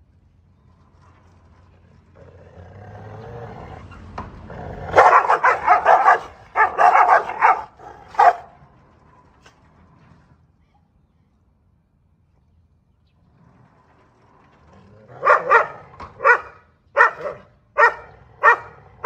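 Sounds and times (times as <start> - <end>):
dog growling: 2.2 - 3.9, 4.5 - 8.4, 14.6 - 19.0
dogs barking: 4.7 - 8.6, 15.1 - 19.0.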